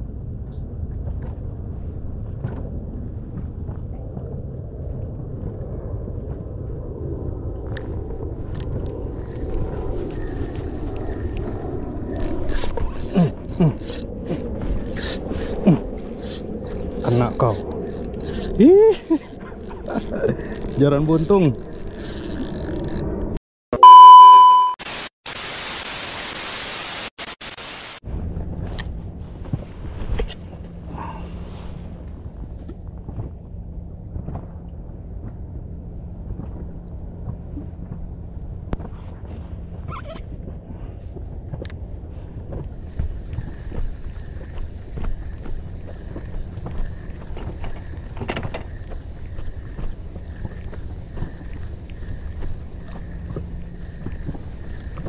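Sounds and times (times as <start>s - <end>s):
outdoor ambience: 0.0s - 23.4s, 24.9s - 55.0s
loud steady beep: 23.8s - 24.8s
tv static hiss: 24.8s - 28.0s.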